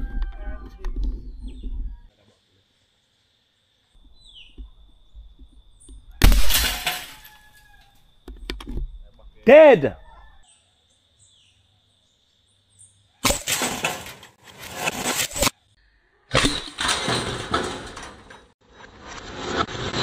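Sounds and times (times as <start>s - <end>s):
loud rustling scraping: 13.2s - 15.6s.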